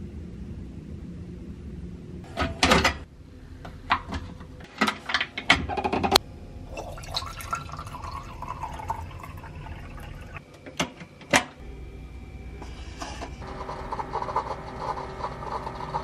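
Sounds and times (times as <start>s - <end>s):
water pouring: 6.7s - 10.4s.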